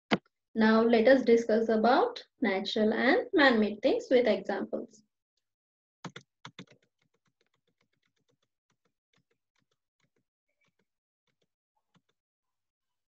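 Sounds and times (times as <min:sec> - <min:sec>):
computer keys clicking: 0:06.0 - 0:12.2.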